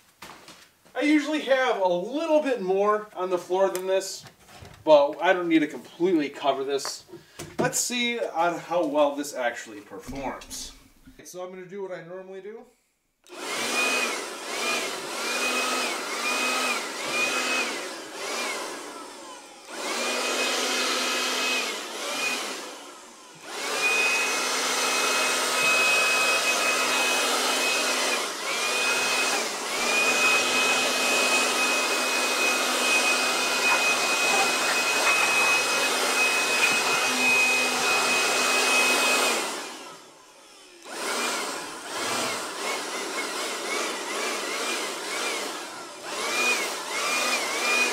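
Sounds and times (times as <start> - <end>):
cordless blower whining: 13.2 - 47.9.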